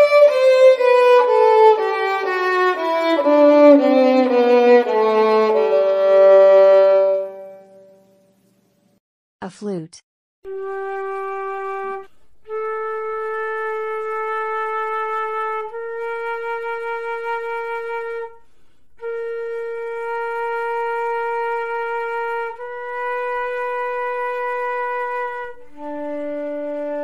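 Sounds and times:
flute playing long notes: 0.0s - 7.8s, 10.5s - 27.0s.

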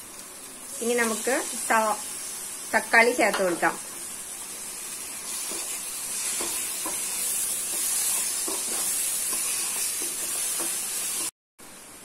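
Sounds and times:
tomatoes sizzling in hot oil: 0.0s - 12.0s
wooden spatula scraping pan: 5.3s - 11.3s.

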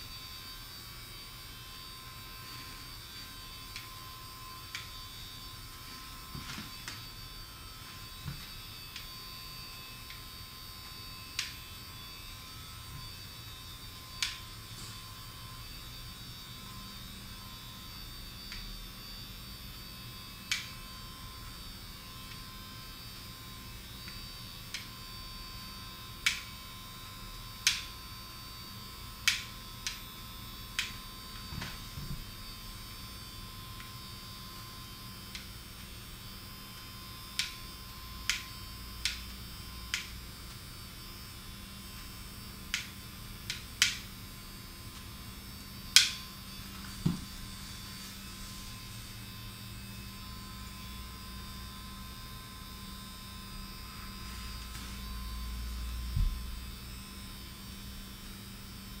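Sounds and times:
electrical hum: 0.0s - 59.0s.

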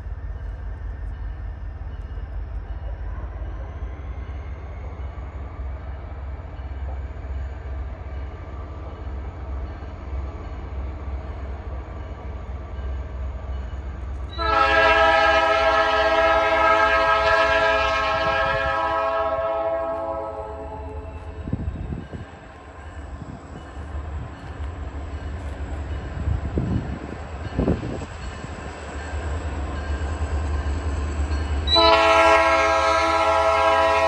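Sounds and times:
locomotive air horn blast: 14.3s - 21.4s, 31.7s - 34.0s.

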